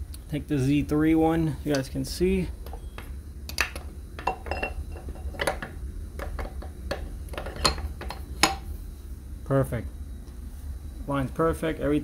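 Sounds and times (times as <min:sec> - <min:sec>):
metal clinks and knocks: 0:02.6 - 0:08.6.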